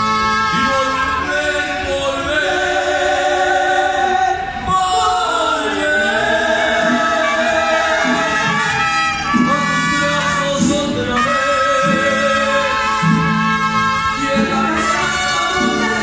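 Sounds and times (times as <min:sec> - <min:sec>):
mariachi band playing: 0:00.0 - 0:16.0.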